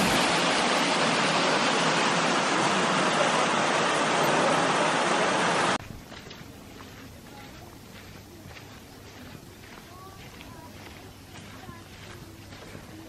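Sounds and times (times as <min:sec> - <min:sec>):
rush of falling water: 0:00.0 - 0:05.8.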